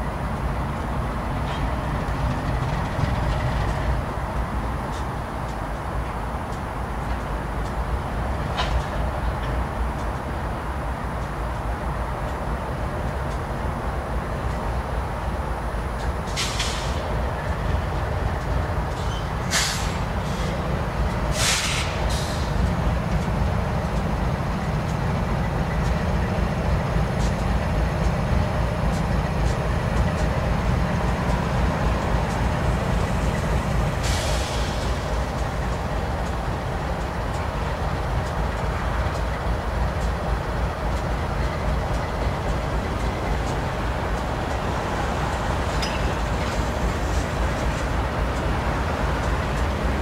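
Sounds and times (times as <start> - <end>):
diesel locomotive rumble: 0.0 - 50.0
air brakes hissing: 16.3 - 17.1, 19.0 - 20.6, 21.3 - 22.6, 33.9 - 35.4.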